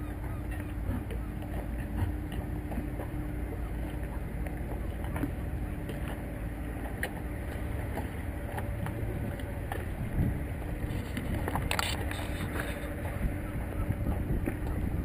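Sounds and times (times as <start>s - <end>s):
steady low hum: 0.0s - 15.0s
wind rumbling on microphone: 7.8s - 15.0s.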